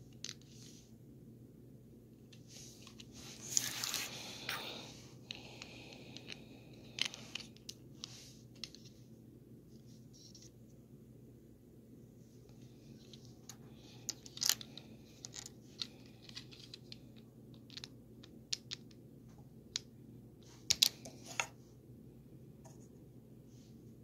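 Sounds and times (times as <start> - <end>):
faint low hum: 0.0 - 24.0
plastic bricks clicking and rattling: 6.2 - 7.8, 13.0 - 19.0, 20.7 - 21.0.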